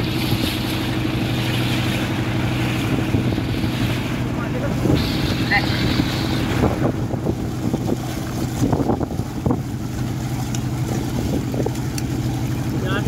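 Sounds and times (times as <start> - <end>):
motorboat engine humming: 0.0 - 13.0
wind buffeting microphone: 0.0 - 13.0.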